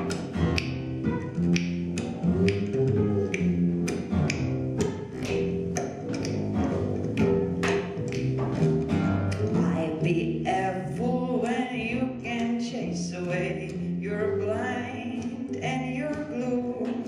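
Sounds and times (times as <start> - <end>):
held low notes: 0.0 - 17.0
person singing: 2.0 - 4.0, 9.3 - 17.0.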